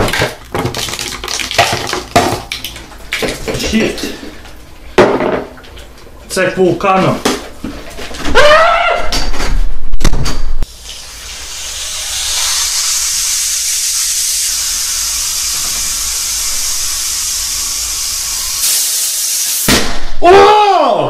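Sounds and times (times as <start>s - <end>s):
high gas hiss from bottle cap: 18.4s - 19.7s.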